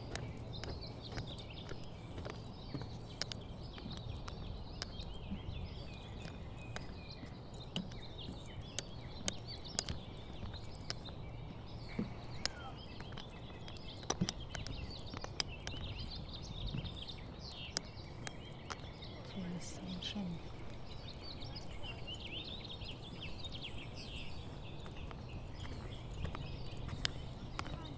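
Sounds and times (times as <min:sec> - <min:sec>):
birds chirping and trilling: 0:00.0 - 0:27.9
footsteps on wooden boardwalk: 0:00.0 - 0:27.9.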